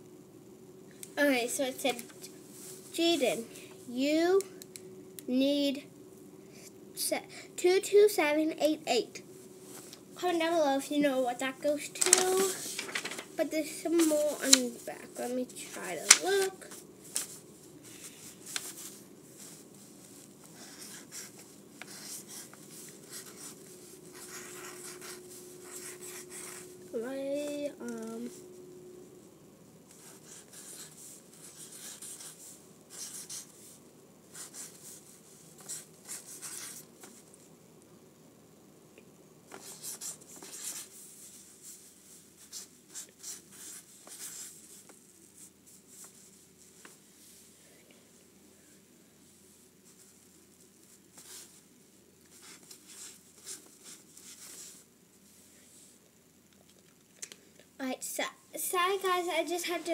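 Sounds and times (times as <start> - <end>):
faint steady hum: 0.0 - 59.9
paper being handled: 12.0 - 17.4
marker scratching on paper: 13.9 - 17.4, 20.6 - 26.7, 29.9 - 33.5, 34.3 - 37.2, 39.6 - 41.0, 42.4 - 44.8, 52.3 - 54.8.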